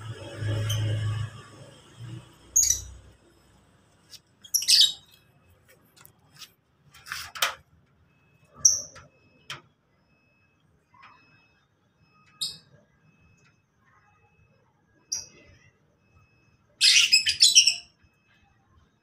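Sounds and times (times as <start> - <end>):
lovebirds chirping and squawking: 2.6 - 3.1, 4.1 - 5.2, 16.8 - 17.9.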